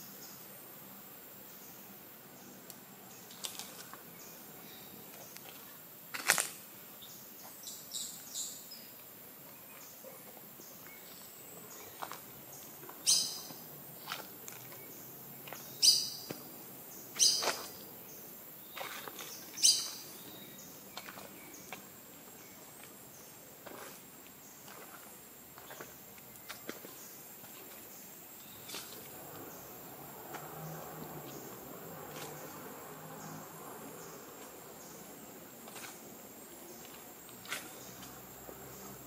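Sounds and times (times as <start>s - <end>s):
bird calling: 9.5s - 21.8s.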